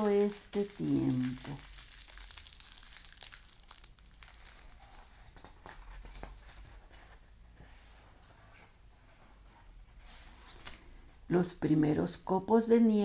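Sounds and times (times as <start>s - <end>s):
dry leaves crackling: 0.0s - 5.0s
book page turning: 0.5s - 7.2s, 10.2s - 10.9s.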